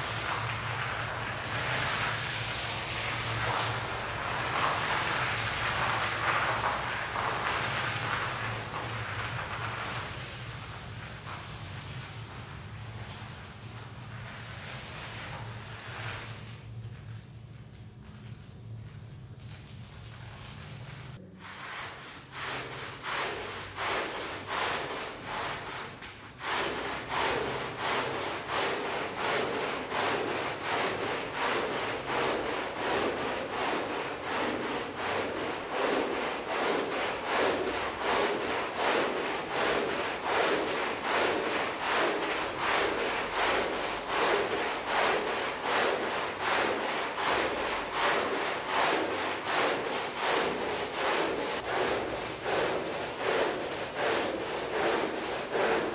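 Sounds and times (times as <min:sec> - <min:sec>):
stiff brush scrubbing rug: 0:00.0 - 0:55.9.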